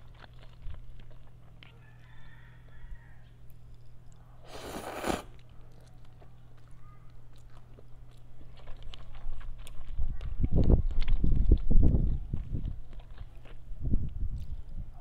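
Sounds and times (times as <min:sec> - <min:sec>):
person chewing noodles: 0:00.0 - 0:10.0, 0:14.3 - 0:15.0
slurping noodles: 0:04.4 - 0:05.4.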